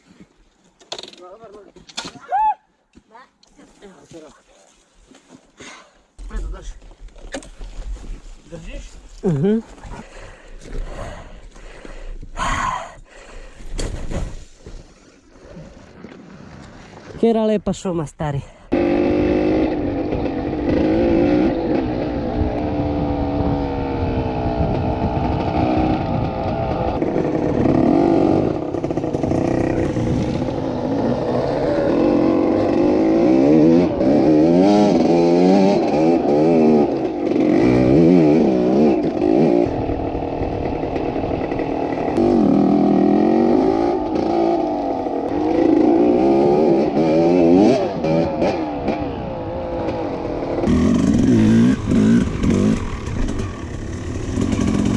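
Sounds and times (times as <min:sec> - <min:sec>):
dirt bike engine revving: 0:18.7 - 0:54.9.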